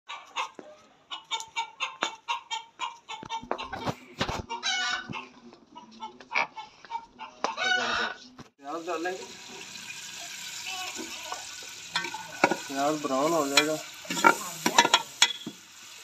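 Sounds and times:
rooster clucking: 0.1 - 8.4.

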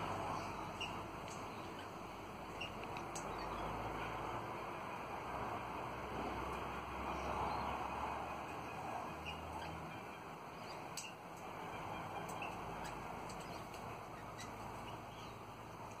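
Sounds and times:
steady background noise: 0.0 - 16.0
parrots chirping: 0.2 - 3.7, 8.4 - 15.4.

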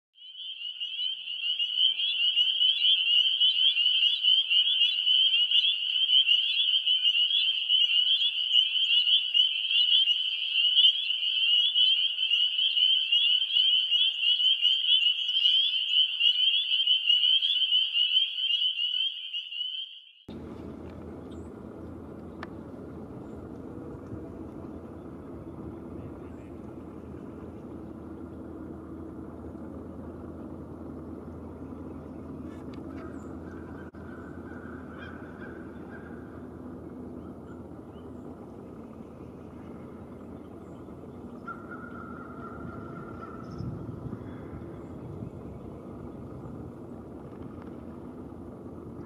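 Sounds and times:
frogs trilling in chorus: 0.2 - 45.4
low background rumble: 20.3 - 49.0.

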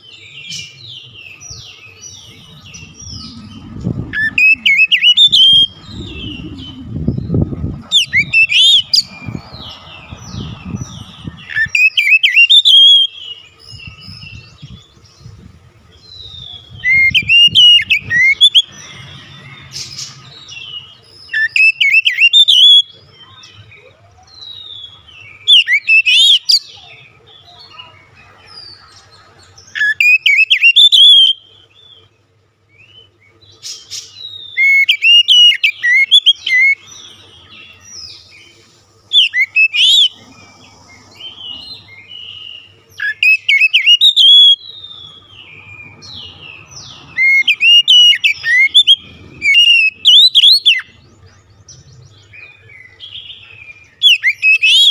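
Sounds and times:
soft bird chirps: 0.0 - 15.4
bird singing whistled phrases: 1.5 - 9.1, 10.3 - 14.0, 16.2 - 18.7, 21.3 - 23.4, 24.3 - 26.9, 29.7 - 31.5, 34.2 - 36.9, 39.1 - 40.2, 42.2 - 46.2, 46.8 - 51.0, 52.8 - 54.9.

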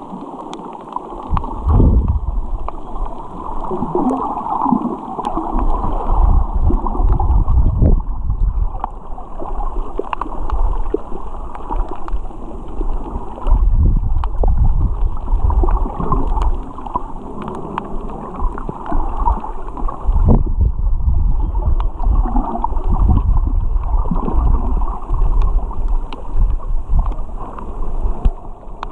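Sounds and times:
muffled underwater rushing water: 0.0 - 28.9
small scattered clicks: 0.1 - 1.6, 2.6 - 5.9, 9.9 - 20.0, 24.4 - 28.9.

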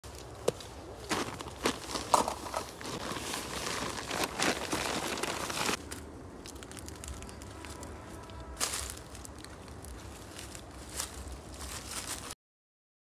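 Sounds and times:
tent fabric rustling and crackling: 0.1 - 5.8.

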